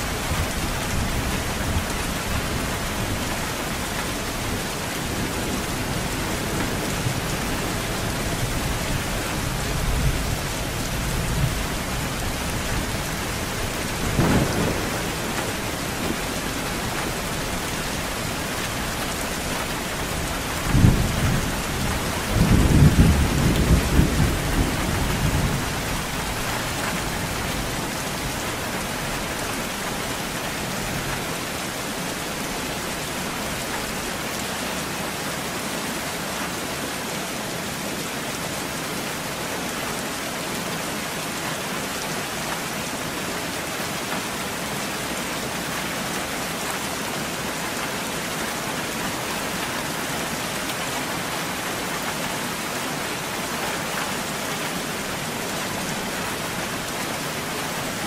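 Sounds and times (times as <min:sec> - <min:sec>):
steady rainfall: 0:00.0 - 0:58.0
thunder rumble: 0:04.4 - 0:29.1.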